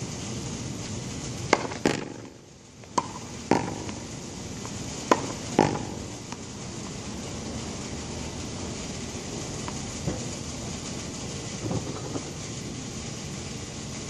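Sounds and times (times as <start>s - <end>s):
steady background hiss: 0.0s - 14.0s
ball hitting wall: 1.5s - 6.2s
racket hitting tennis ball: 1.5s - 6.4s.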